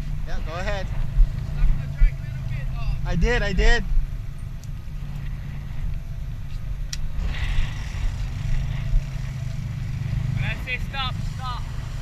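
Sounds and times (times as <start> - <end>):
boat engine droning: 0.0 - 12.0
wind and water hiss: 3.7 - 12.0.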